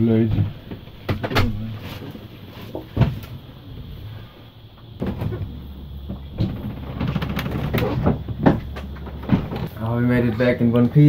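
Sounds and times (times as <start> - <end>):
sailboat low hum: 0.0 - 11.0
sharp knocks and bumps: 2.6 - 4.0, 4.8 - 9.8.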